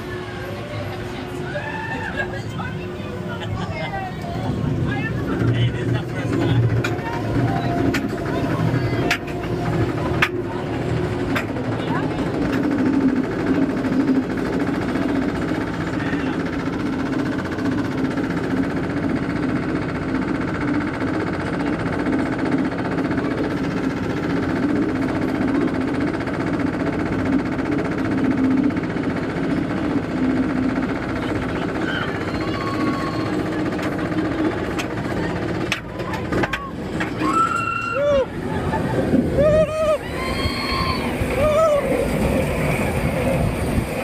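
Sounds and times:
roller coaster chain lift clatter: 0.0 - 44.0.

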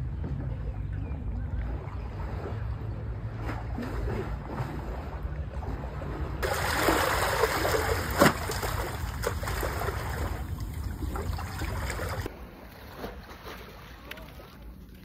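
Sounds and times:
small waves lapping and splashing: 1.0 - 15.0.

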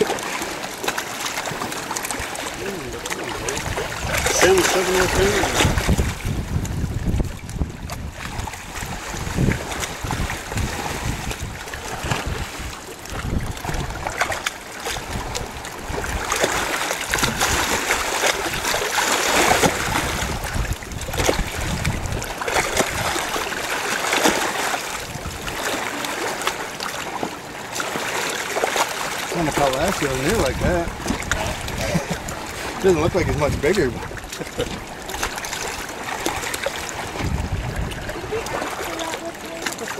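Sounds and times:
water sloshing and splashing: 0.0 - 39.9
wind rumble on microphone: 2.6 - 18.8, 19.4 - 23.4, 25.0 - 25.7, 29.4 - 39.9.

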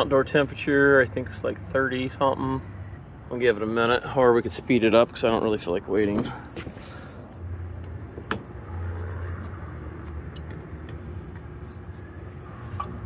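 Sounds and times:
rooftop unit humming: 0.0 - 13.0.

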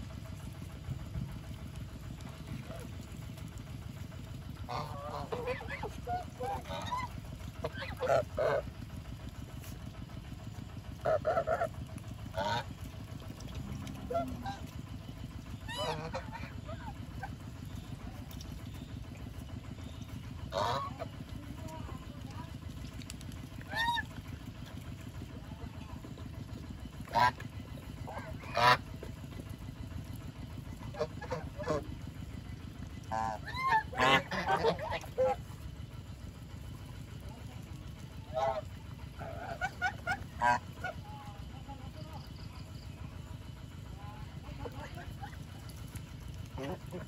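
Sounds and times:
low steady rumble: 0.0 - 47.0
geese honking: 4.6 - 8.7, 11.0 - 12.7, 13.3 - 14.9, 15.5 - 18.9, 19.8 - 22.2, 23.6 - 24.2, 27.0 - 29.1, 30.8 - 32.0, 33.0 - 35.6, 38.2 - 41.3.

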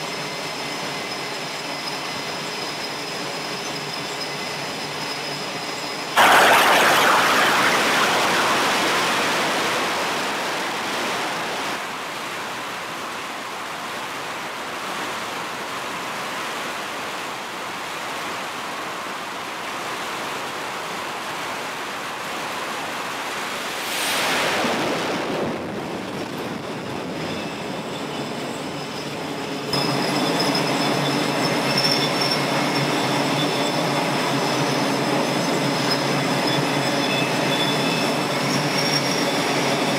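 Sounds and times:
high-pitched engine whine: 0.0 - 11.8, 26.4 - 39.9
jet engines roaring: 6.2 - 11.8.

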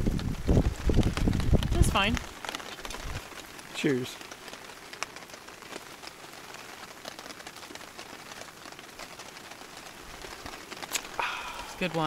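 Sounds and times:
heavy rain on a tarp: 0.0 - 12.0.

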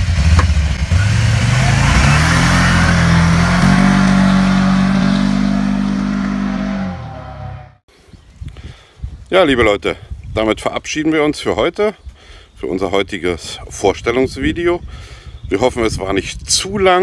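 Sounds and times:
quad engine revving: 0.0 - 7.8.

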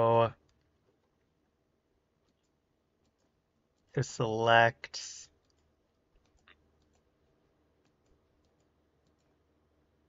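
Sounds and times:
computer mouse clicks: 0.4 - 1.3, 2.2 - 3.9, 5.4 - 7.2, 7.8 - 9.4.

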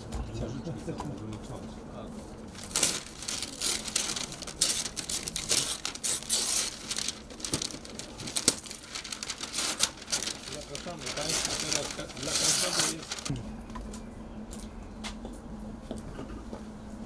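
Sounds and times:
wrapping paper crinkling: 2.5 - 13.3.

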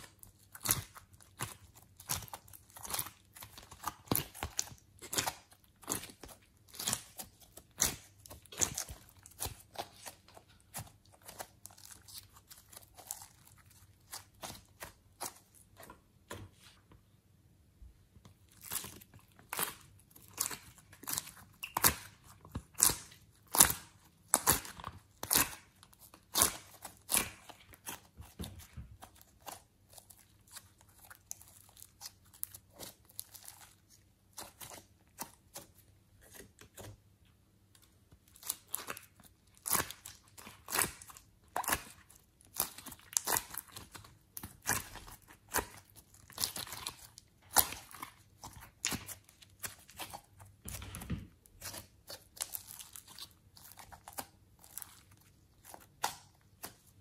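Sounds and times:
slime squeezed with sticky pops: 18.6 - 28.4.

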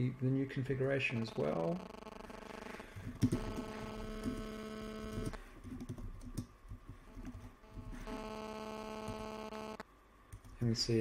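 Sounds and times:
electrical hum: 0.0 - 11.0
keyboard typing clicks: 3.2 - 6.5.

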